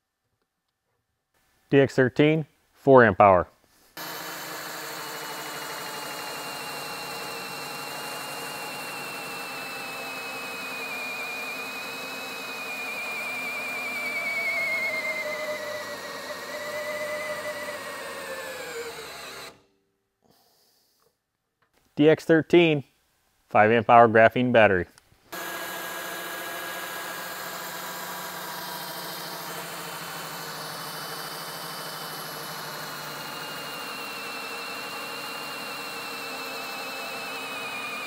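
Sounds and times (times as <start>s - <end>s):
cordless drill whining: 4.0s - 19.7s, 25.3s - 38.0s.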